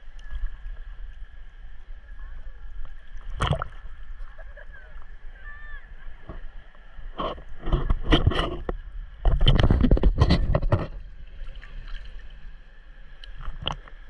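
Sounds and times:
seawater sloshing and splashing: 0:02.9 - 0:14.0.

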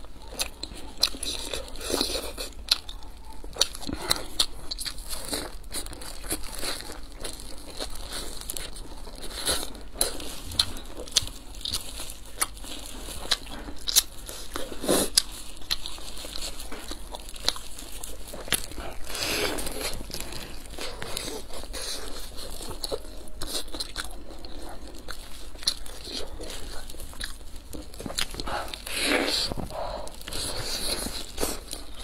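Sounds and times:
crunchy biting and chewing: 0:00.0 - 0:32.0
plastic gloves crinkling: 0:04.0 - 0:32.0.

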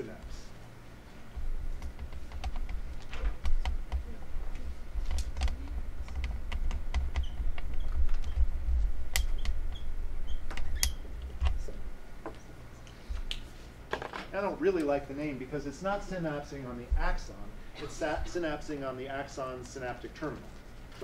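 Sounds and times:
sharp clicks and taps: 0:01.8 - 0:08.5, 0:09.1 - 0:09.6.

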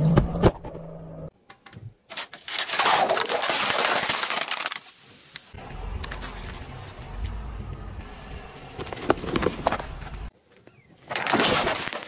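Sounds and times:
tyre crunching ice and cups: 0:02.1 - 0:04.9
low engine hum: 0:05.6 - 0:10.3.

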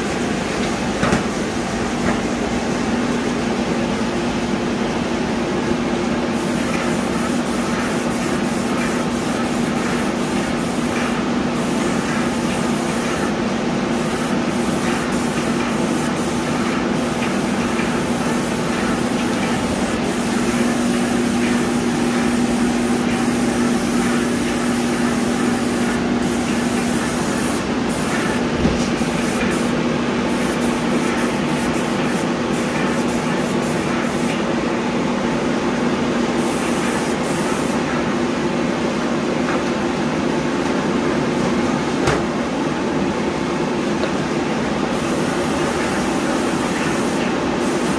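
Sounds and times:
paint sprayer motor hum: 0:06.4 - 0:34.3
spray gun hissing: 0:06.4 - 0:34.4, 0:36.4 - 0:37.8, 0:44.9 - 0:47.9.

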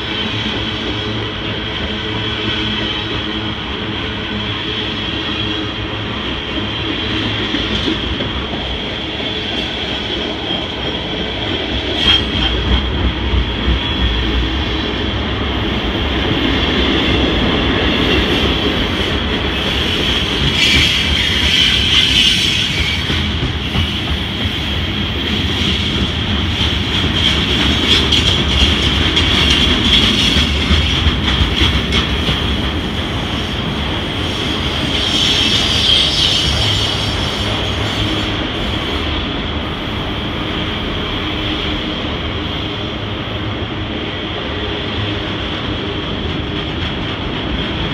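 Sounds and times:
freight train cars rumbling: 0:00.0 - 0:47.9
high wheel squeal: 0:34.3 - 0:39.1.

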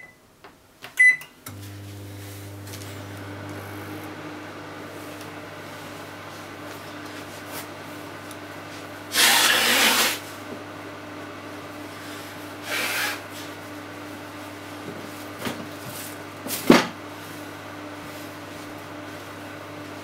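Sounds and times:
microwave oven humming: 0:01.0 - 0:20.0.

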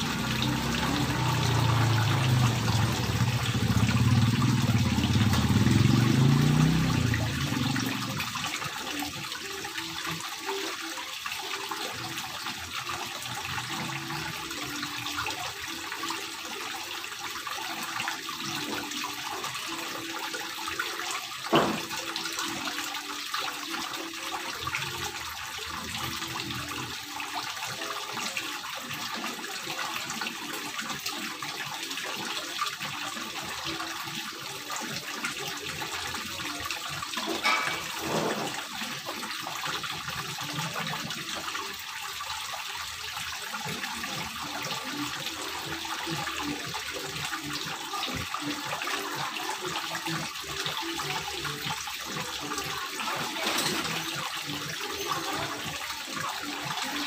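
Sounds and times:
fountain water splashing: 0:00.0 - 0:16.3.

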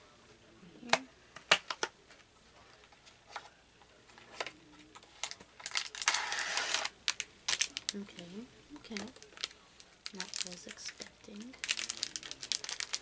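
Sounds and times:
plastic wrapper crinkling: 0:05.1 - 0:13.0.

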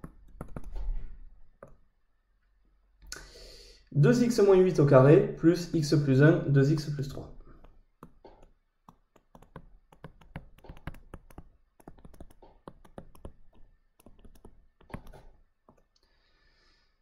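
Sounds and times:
stylus tapping on tablet screen: 0:00.0 - 0:00.9, 0:01.5 - 0:01.8, 0:07.6 - 0:15.9.

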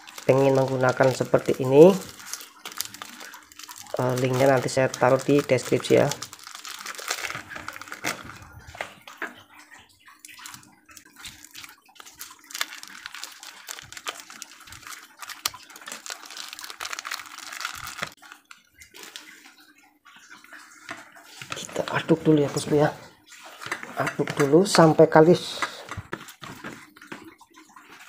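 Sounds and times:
plastic bag crinkling: 0:00.0 - 0:09.2, 0:10.2 - 0:19.4.

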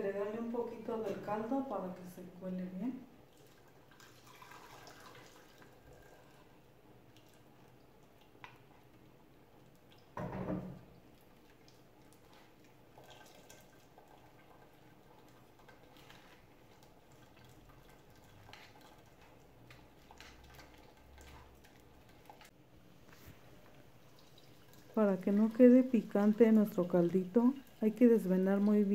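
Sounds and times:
broth dripping through a strainer: 0:03.0 - 0:22.6, 0:23.2 - 0:28.9
thump: 0:10.2 - 0:10.8.

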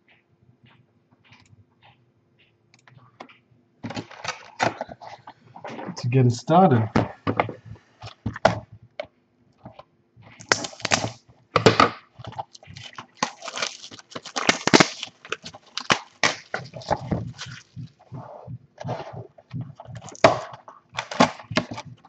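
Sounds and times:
clicks and knocks on cardboard box: 0:09.7 - 0:22.0
plastic wrap crinkling and tearing: 0:10.4 - 0:18.2, 0:19.8 - 0:22.0.

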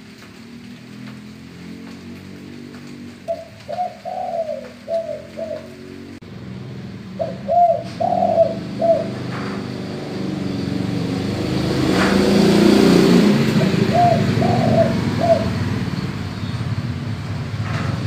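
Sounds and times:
dove cooing: 0:03.2 - 0:06.0, 0:07.1 - 0:09.7, 0:12.7 - 0:15.7.

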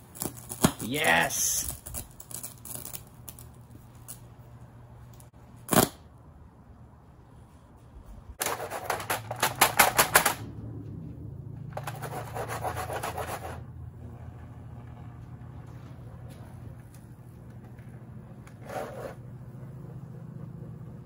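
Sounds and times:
rapid electrical crackling: 0:00.0 - 0:04.3
steady low hum: 0:00.0 - 0:21.0.

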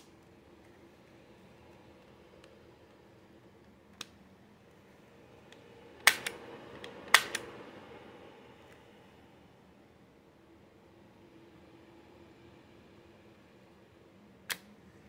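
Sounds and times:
safety catch click: 0:06.0 - 0:06.4, 0:07.1 - 0:07.4.

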